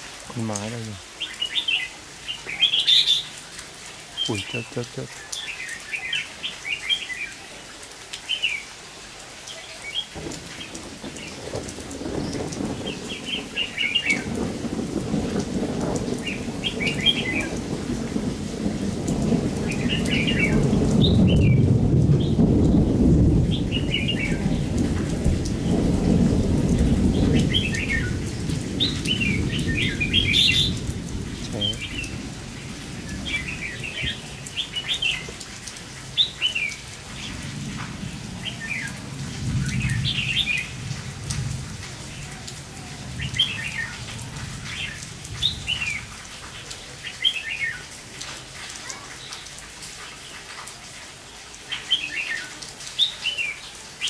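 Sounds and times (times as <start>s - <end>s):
steady rain: 0.0s - 54.0s
birds chattering calls: 0.5s - 7.6s, 9.4s - 17.9s, 26.7s - 39.0s.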